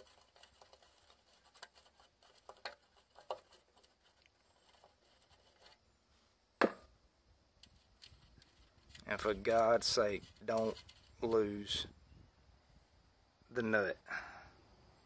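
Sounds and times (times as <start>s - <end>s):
metal clicks and scrapes: 0.0s - 5.8s, 7.6s - 11.4s.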